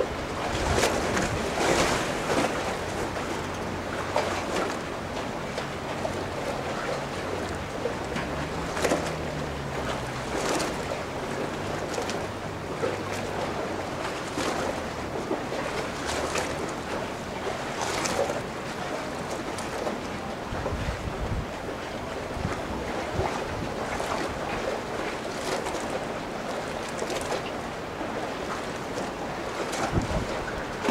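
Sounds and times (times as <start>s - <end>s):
wind on microphone: 0.0s - 13.7s, 20.4s - 24.7s, 29.7s - 30.9s
low engine hum: 0.0s - 30.9s
water lapping and splashing: 0.0s - 30.9s.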